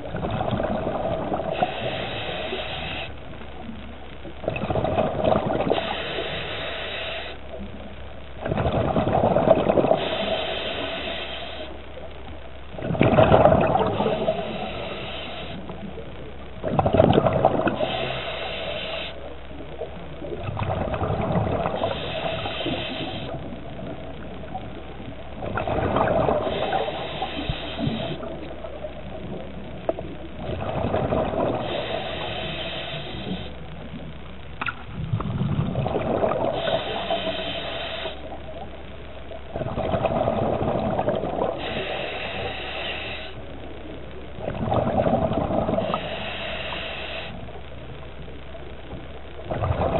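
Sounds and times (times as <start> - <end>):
regulator hissing on inhale: 1.3 - 3.2, 5.6 - 7.4, 9.8 - 11.8, 13.6 - 15.9, 17.6 - 19.3, 21.7 - 23.5, 26.2 - 28.4, 31.4 - 33.6, 36.4 - 38.6, 41.4 - 43.5, 45.6 - 47.5
bubbles bursting on exhale: 4.4 - 6.5, 8.4 - 10.9, 12.7 - 15.4, 16.6 - 19.0, 20.3 - 23.4, 25.4 - 28.4, 30.4 - 33.5, 34.6 - 38.3, 39.5 - 42.8, 44.4 - 47.3, 49.5 - 49.9.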